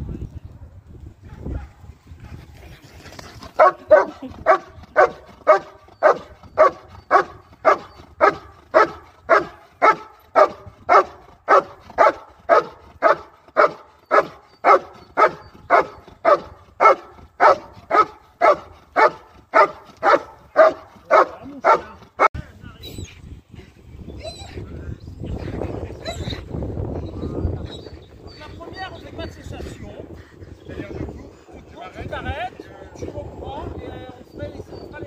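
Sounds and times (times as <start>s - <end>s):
dog barking: 1.3s - 1.8s, 3.6s - 22.3s.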